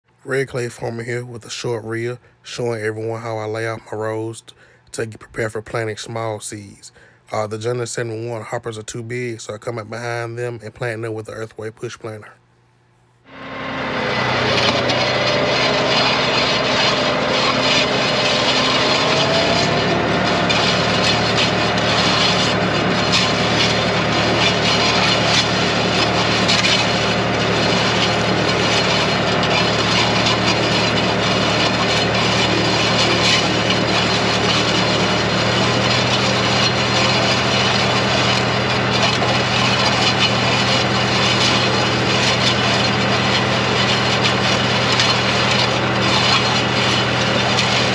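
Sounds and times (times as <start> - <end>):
tractor engine running: 13.3 - 47.9
planter units rattling: 13.8 - 47.9.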